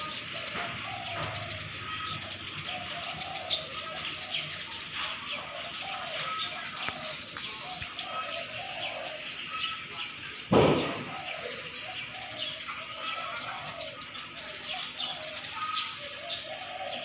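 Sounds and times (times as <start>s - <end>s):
low cooing bird calls: 0.0s - 17.0s.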